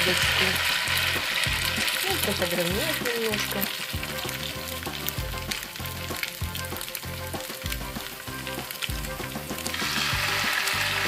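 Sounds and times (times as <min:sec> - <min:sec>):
batter frying in hot oil: 0:00.0 - 0:11.0.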